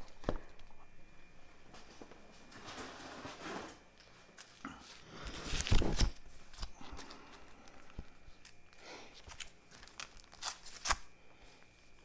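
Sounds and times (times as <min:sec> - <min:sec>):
plastic bags rustling: 0:01.8 - 0:11.2.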